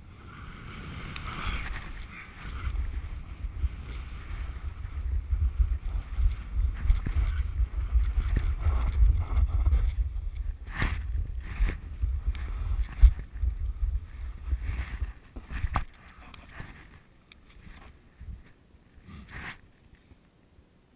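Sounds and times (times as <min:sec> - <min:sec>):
snowboard scraping over snow: 0:00.0 - 0:15.8
wind buffeting microphone: 0:00.0 - 0:16.8.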